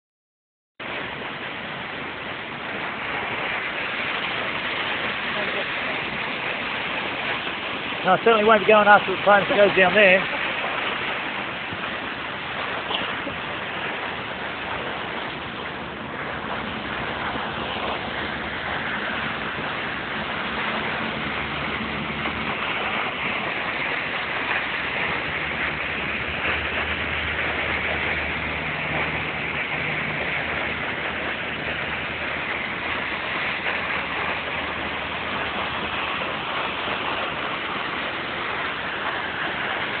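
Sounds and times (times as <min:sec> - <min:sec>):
waterfall rushing: 0:00.8 - 0:40.0.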